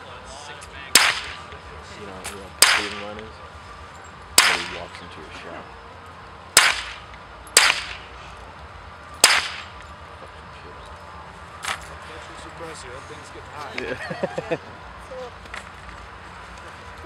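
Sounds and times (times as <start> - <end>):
suppressed handgun shots: 1.0 - 1.4, 2.6 - 3.1, 4.4 - 4.9, 6.6 - 8.1, 9.2 - 9.8.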